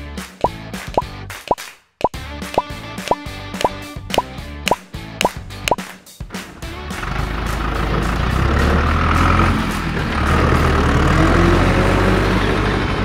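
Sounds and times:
truck engine rumbling: 0:06.6 - 0:13.0.

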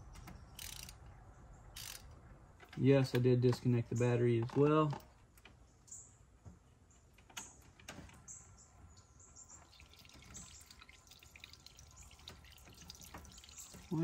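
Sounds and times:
faint dripping: 0:09.6 - 0:14.0.

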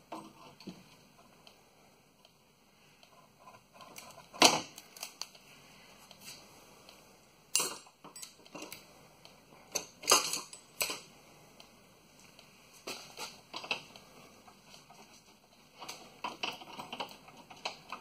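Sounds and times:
metal tools clicking and clanking: 0:07.5 - 0:08.8, 0:09.7 - 0:11.1.

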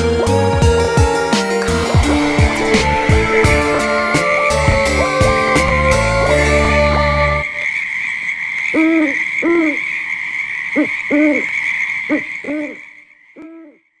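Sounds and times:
high-pitched hiss: 0:01.2 - 0:08.3
owl hooting: 0:10.7 - 0:13.8.

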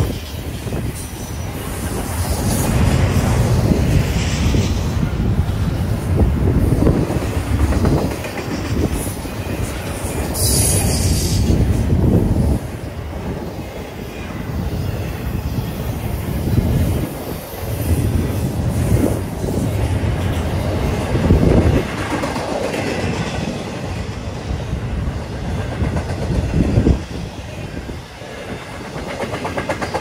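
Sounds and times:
train wheels rumbling on rails: 0:00.0 - 0:30.0
high hiss: 0:08.9 - 0:20.4.

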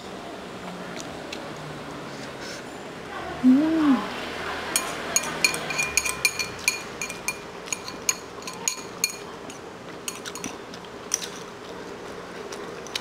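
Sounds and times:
metal chopsticks clinking on bowl: 0:04.8 - 0:09.3.

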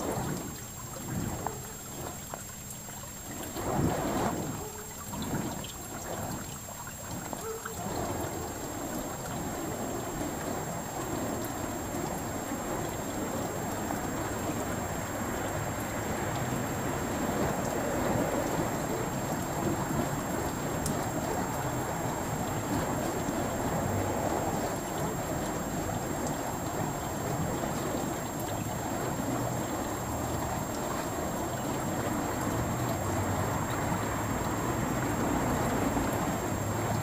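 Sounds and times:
fire poi whooshing: 0:00.0 - 0:01.4, 0:03.3 - 0:15.6, 0:16.6 - 0:31.2.

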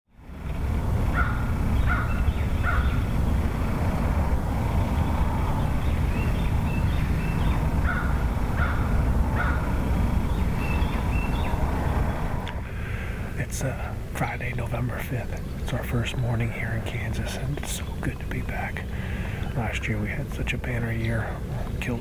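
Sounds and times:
low rumble: 0:00.1 - 0:22.0
crow cawing: 0:01.1 - 0:03.0, 0:07.8 - 0:09.8
small bird chirps: 0:04.9 - 0:12.2.

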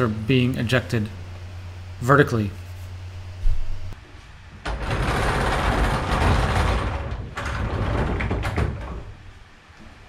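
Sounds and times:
casters rolling on vinyl floor: 0:03.4 - 0:10.0.

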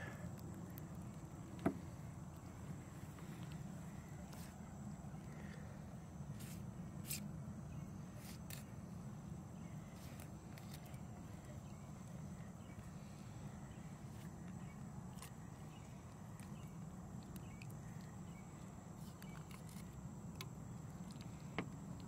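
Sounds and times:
insects chirring: 0:00.0 - 0:22.0
low steady hum: 0:00.0 - 0:22.0.

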